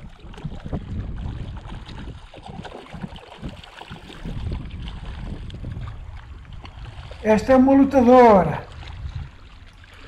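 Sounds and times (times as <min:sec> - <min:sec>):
fish splashing at surface: 0:00.0 - 0:07.2
lapping water: 0:00.0 - 0:10.0
wind rumble on microphone: 0:00.0 - 0:10.0.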